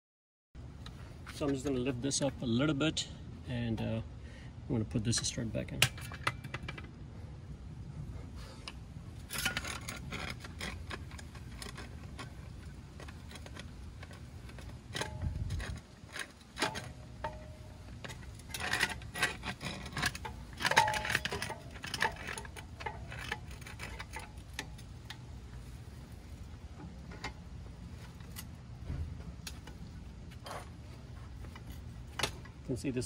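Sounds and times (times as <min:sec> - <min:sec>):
metal tools clinking and clanking: 0:09.2 - 0:25.3.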